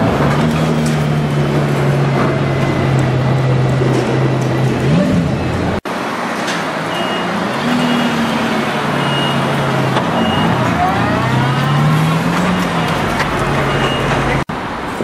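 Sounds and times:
reversing beeper: 6.9 - 13.0, 13.6 - 14.4.

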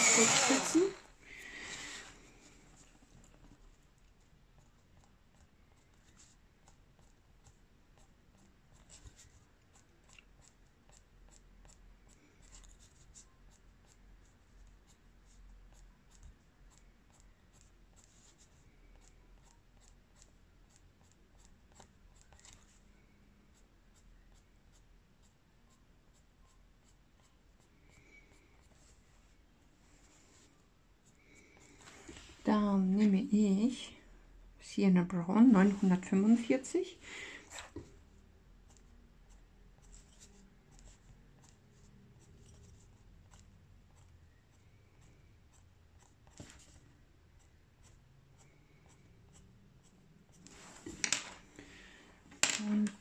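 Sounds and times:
pencil scratching on paper: 0.0 - 0.9, 2.7 - 22.8, 23.5 - 29.1, 38.6 - 50.9.

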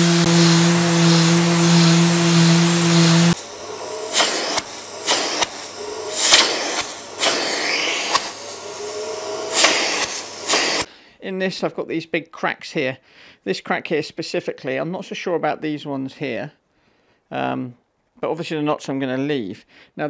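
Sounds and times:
sander motor hum: 0.0 - 10.9
sanding hiss: 0.0 - 10.9.

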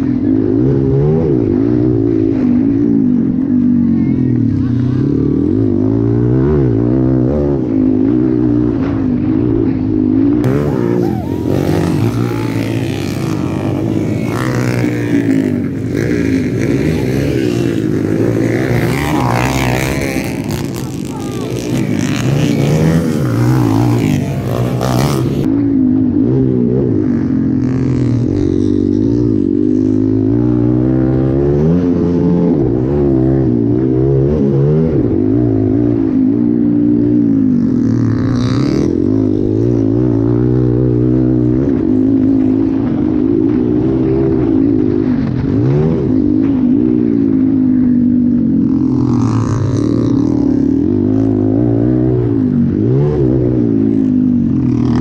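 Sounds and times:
dirt bike engine revving: 4.6 - 25.6, 26.2 - 55.0.

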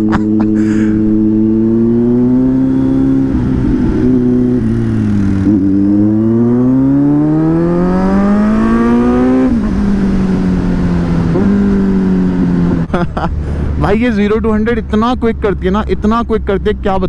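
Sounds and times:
motorcycle engine accelerating: 0.0 - 16.4.

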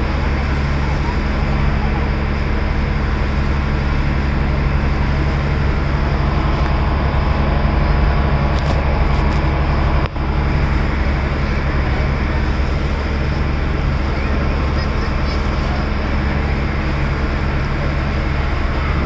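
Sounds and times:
boat engine droning: 0.0 - 19.0
rushing water: 0.0 - 19.0
wind: 0.0 - 19.0.

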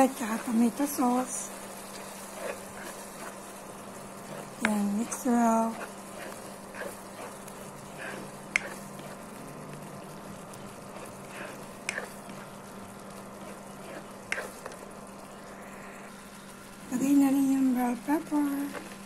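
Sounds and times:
low hum: 0.0 - 19.0
sauce simmering: 0.0 - 19.0
spoon stirring sauce: 0.2 - 15.0.

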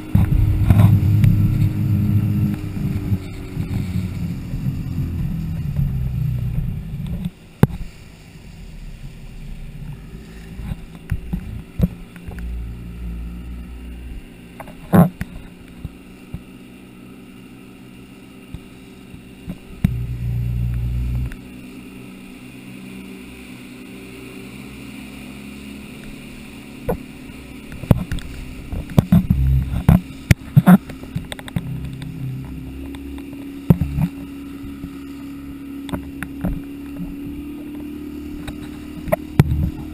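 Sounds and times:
wind rumble on microphone: 0.0 - 16.5, 19.4 - 21.6, 26.8 - 39.9
hull slapping waves: 0.0 - 17.1, 18.4 - 39.9
motorboat engine running: 0.0 - 39.9
water rushing and spraying: 0.0 - 39.9.

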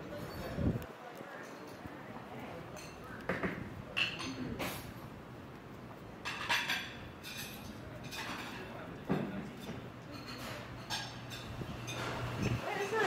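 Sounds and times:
low room murmur: 0.0 - 13.0
dishware clinking: 4.0 - 4.9, 6.2 - 13.0.

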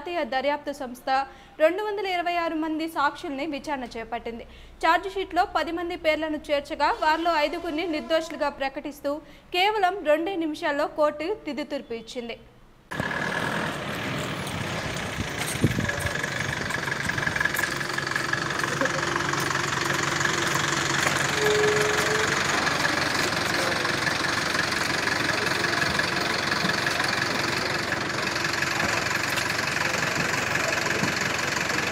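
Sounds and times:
outdoor background noise: 0.0 - 31.9
vehicle engine idling: 12.9 - 31.9.

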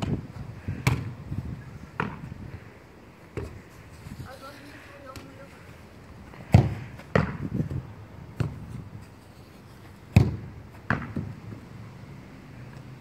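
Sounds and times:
ball bouncing and thudding: 0.0 - 1.2, 1.9 - 2.3, 3.3 - 3.6, 6.4 - 8.8, 10.1 - 11.5
football being kicked: 0.0 - 1.2, 1.9 - 2.3, 6.4 - 8.7, 10.1 - 11.4.

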